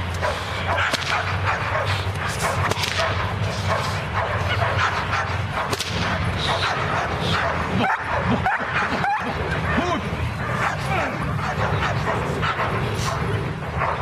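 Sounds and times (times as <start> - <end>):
dog barking: 0.2 - 14.0
sharp cracks: 0.8 - 1.4, 2.6 - 3.3, 5.6 - 6.3.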